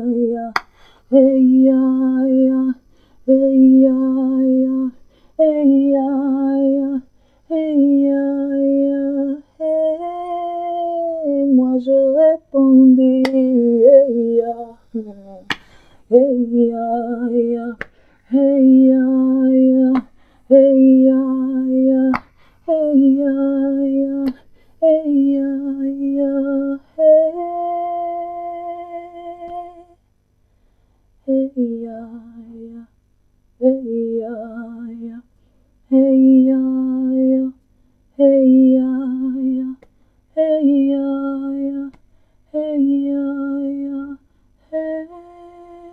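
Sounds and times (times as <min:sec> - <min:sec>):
woman humming: 0:01.1 - 0:22.1.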